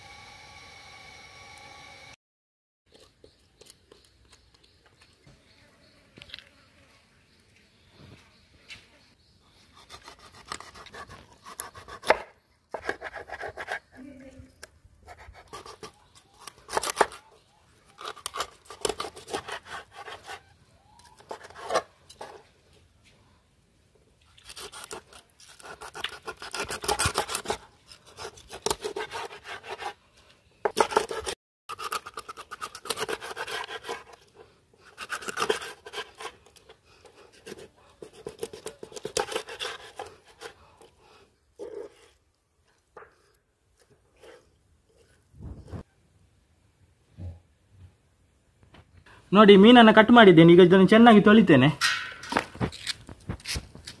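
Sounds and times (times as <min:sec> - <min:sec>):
knife sawing through fish: 0:09.8 - 0:12.1, 0:18.0 - 0:20.5, 0:24.4 - 0:30.0, 0:30.7 - 0:40.9.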